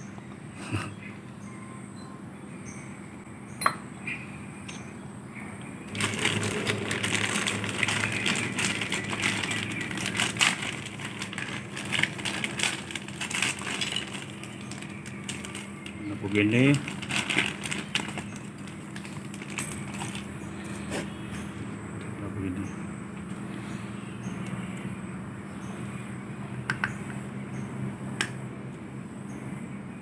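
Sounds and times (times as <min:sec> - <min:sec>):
plastic bag crinkling: 0:05.9 - 0:20.4.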